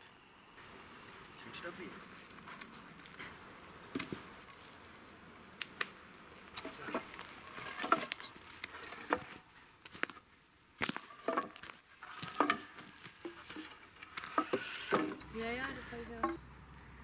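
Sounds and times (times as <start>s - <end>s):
rustling of brush and twigs: 0.6s - 17.0s.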